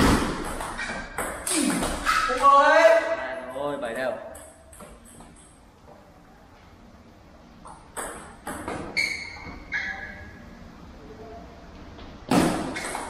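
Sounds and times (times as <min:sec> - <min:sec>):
table tennis ball pinging: 0:00.0 - 0:02.4, 0:04.3 - 0:05.6, 0:07.6 - 0:10.1.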